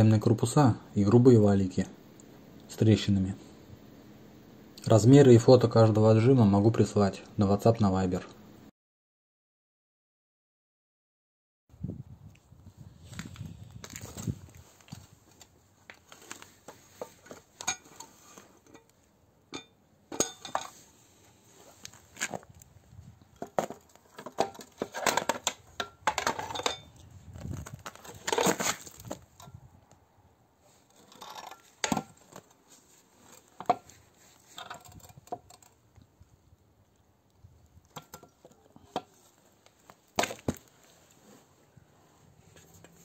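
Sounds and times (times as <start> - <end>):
metal scraping and rubbing: 16.7 - 18.8, 30.7 - 35.2.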